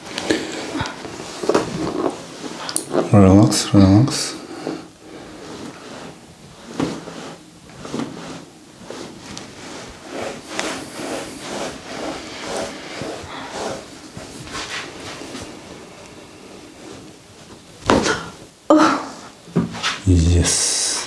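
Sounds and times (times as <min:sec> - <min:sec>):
hands rubbing skin: 0:04.5 - 0:17.7.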